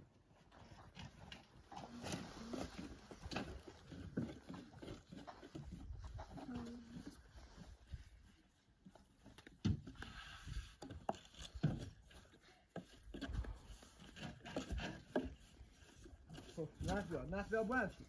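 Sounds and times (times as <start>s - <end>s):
rolling pin on wooden board: 9.7s - 18.0s.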